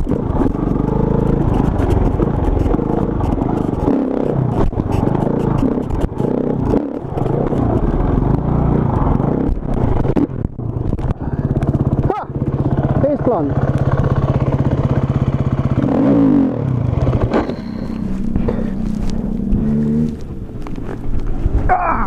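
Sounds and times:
motorcycle engine revving: 0.0 - 22.0
bike clattering over ground: 17.0 - 18.9.

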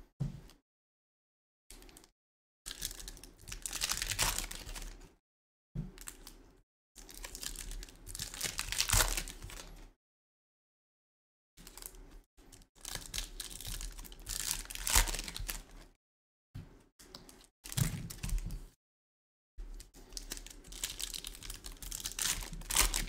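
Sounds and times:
card pack wrappers tearing: 12.8 - 15.7, 20.1 - 23.0.

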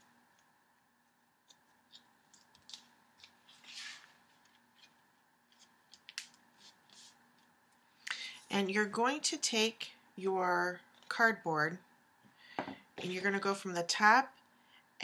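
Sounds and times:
paper rustle: 1.4 - 7.5.

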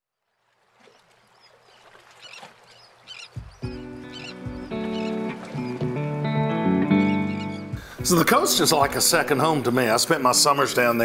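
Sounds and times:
small birds chirping: 0.3 - 6.0, 7.0 - 8.0
music with low thuds and chords: 3.4 - 9.4.

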